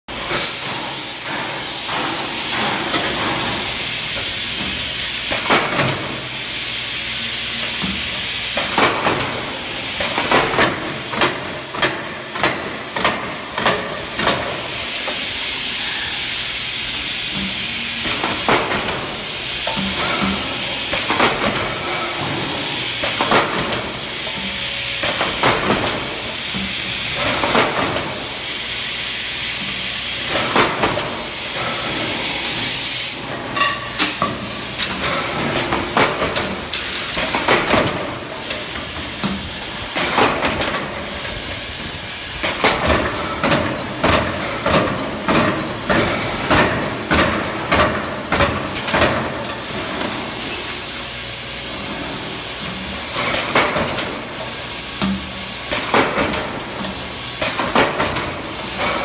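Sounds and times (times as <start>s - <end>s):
steady loud hiss: 0.1s - 59.0s
riveting machine clanks: 16.9s - 28.4s, 29.6s - 50.8s.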